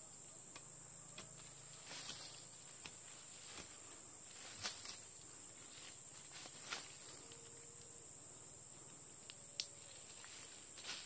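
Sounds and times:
high-pitched insect drone: 0:04.2 - 0:11.0.

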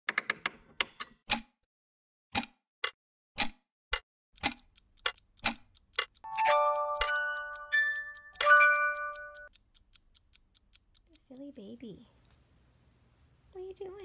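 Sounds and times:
clock-like ticks: 0:02.4 - 0:12.0.

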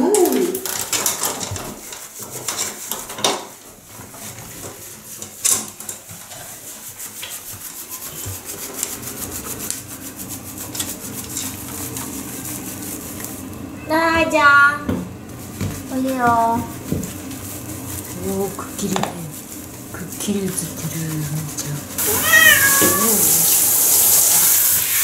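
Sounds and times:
hands rubbing wet fur: 0:01.3 - 0:13.7, 0:15.3 - 0:25.0
steady hiss: 0:21.4 - 0:25.0
cat meowing: 0:22.0 - 0:23.5.

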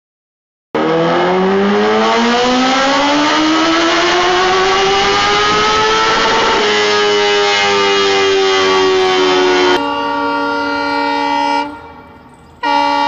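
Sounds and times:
motorcycle engine accelerating: 0:00.8 - 0:09.8.

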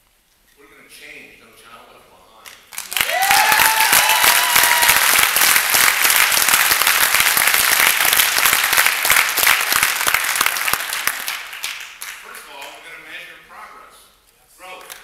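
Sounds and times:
large audience applauding: 0:02.7 - 0:12.3.

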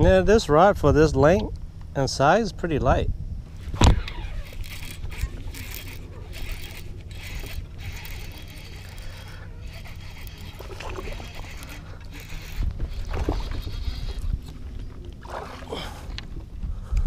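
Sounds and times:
steady low hum: 0:00.0 - 0:17.0
fishing reel gears whirring: 0:03.5 - 0:16.3.

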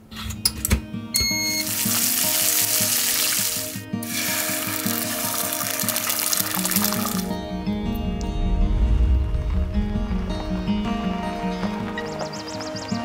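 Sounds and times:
background music: 0:00.0 - 0:13.0
bacon sizzling in a frying pan: 0:01.6 - 0:07.3.

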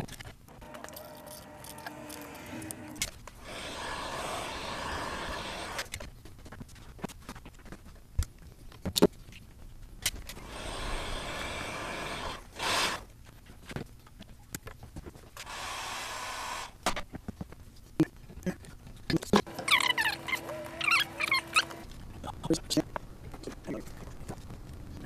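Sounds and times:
wires and tools clicking: 0:00.0 - 0:03.4
heat gun blowing: 0:00.6 - 0:05.9, 0:10.3 - 0:13.1, 0:15.4 - 0:16.8.

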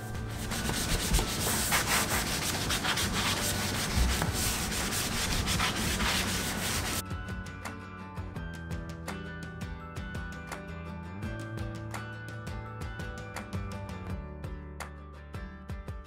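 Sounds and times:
sanding block scraping metal: 0:00.0 - 0:07.0.

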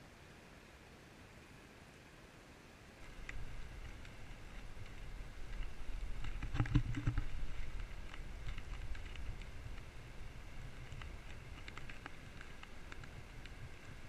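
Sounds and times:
river water flowing: 0:00.0 - 0:14.0
water ticks and patters: 0:03.0 - 0:14.0
wind on microphone: 0:03.0 - 0:14.0.

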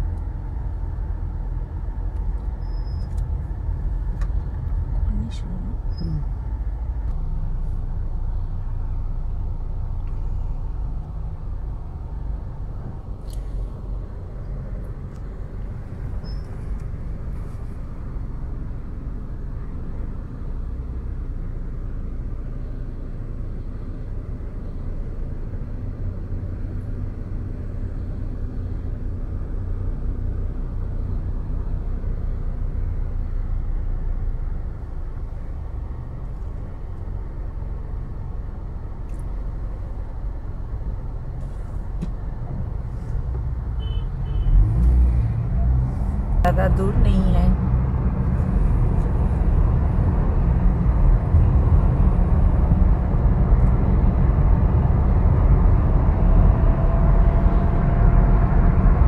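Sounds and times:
car engine and road noise: 0:00.0 - 0:59.0.

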